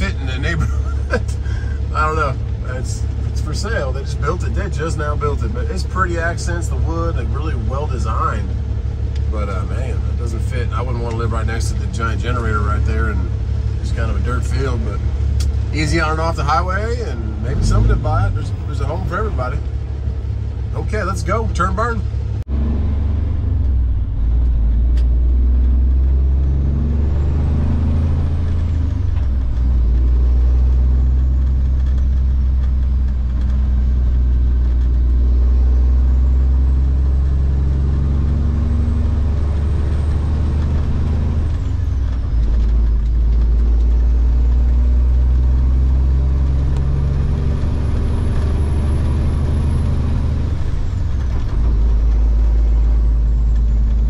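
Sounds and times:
faint high engine whine: 0:00.0 - 0:22.5
diesel truck engine accelerating: 0:00.0 - 0:54.0.

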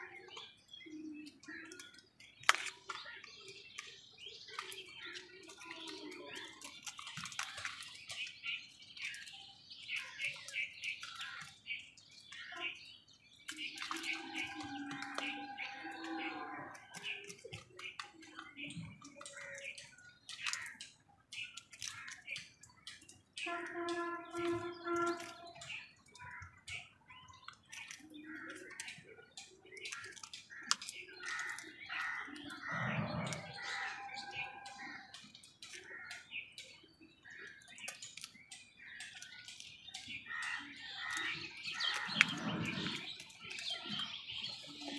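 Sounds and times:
beaks tapping and clicking: 0:00.0 - 0:44.9
crow calls: 0:13.7 - 0:17.3, 0:29.8 - 0:36.3.

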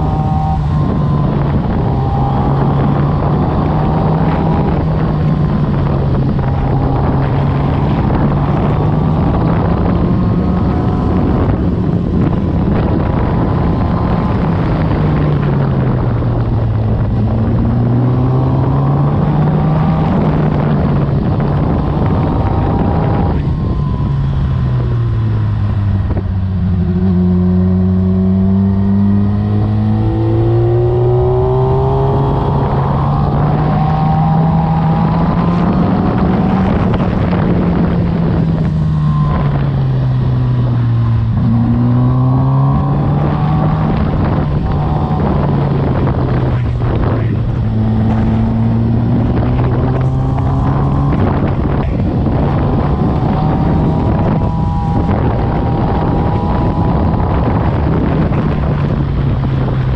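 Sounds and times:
motorcycle engine under load: 0:00.0 - 0:59.9
wind rushing over microphone: 0:00.0 - 0:59.9.

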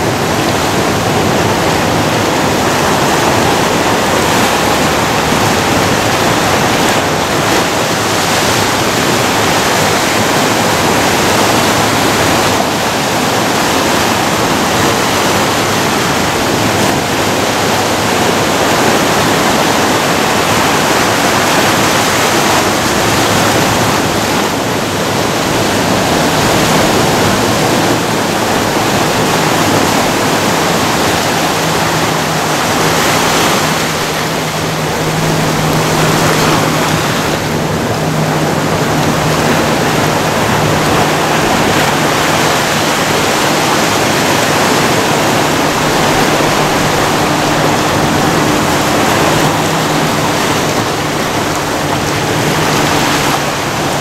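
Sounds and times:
ocean waves breaking on rocks: 0:00.0 - 0:54.0.

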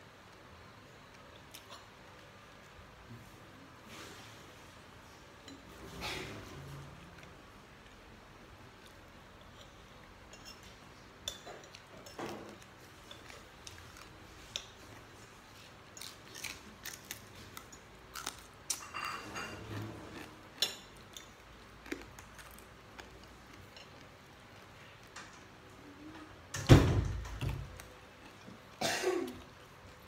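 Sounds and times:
person chewing and biting: 0:16.0 - 0:18.8.

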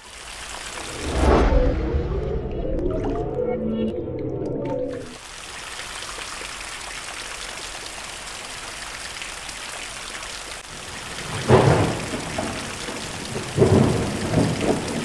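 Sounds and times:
steady rain: 0:00.0 - 0:02.5, 0:05.1 - 0:15.0
rumbling thunder: 0:11.1 - 0:15.0.

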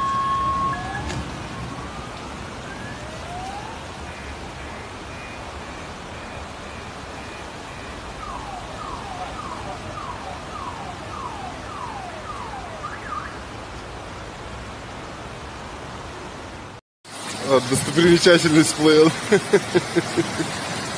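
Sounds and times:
car alarm beeping and whooping: 0:00.0 - 0:01.2, 0:04.1 - 0:13.4
rushing floodwater: 0:00.0 - 0:20.9.

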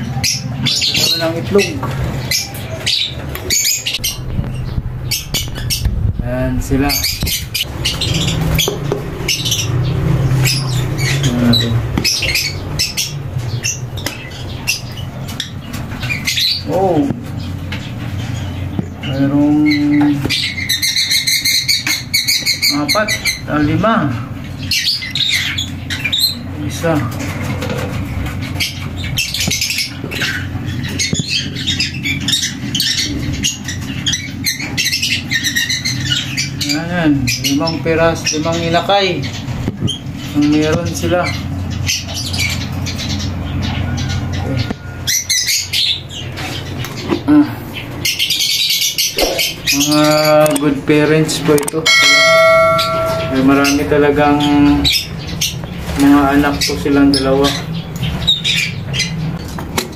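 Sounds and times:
steady low hum: 0:00.0 - 0:21.2
lovebirds squawking and chirping: 0:00.0 - 0:59.9
bird call falling in pitch: 0:51.9 - 0:53.8.

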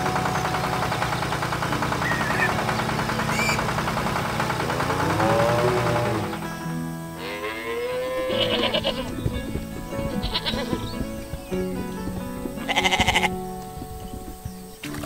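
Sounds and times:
light background music: 0:00.0 - 0:15.0
goat bleating: 0:04.5 - 0:06.5, 0:07.2 - 0:14.4.

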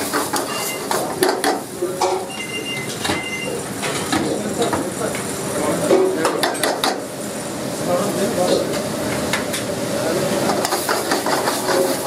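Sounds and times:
frying hiss: 0:00.0 - 0:12.0.

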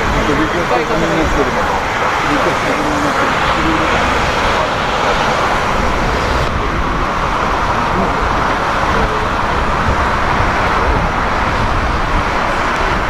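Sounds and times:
jet engines running: 0:00.0 - 0:13.0.

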